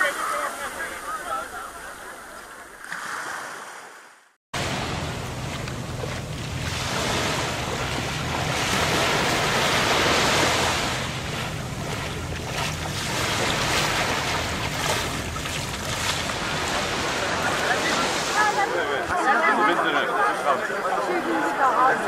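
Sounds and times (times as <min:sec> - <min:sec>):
wind buffeting microphone: 0:04.6 - 0:17.4
surf washing onto beach: 0:04.6 - 0:19.3.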